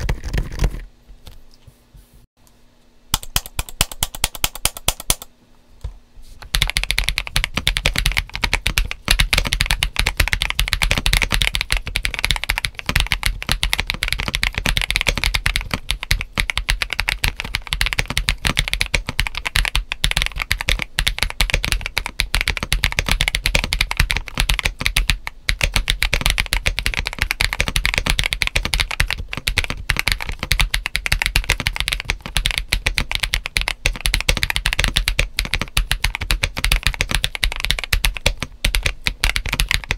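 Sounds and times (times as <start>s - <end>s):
mechanical keyboard typing: 0.0s - 0.8s, 3.2s - 5.3s, 6.4s - 39.9s.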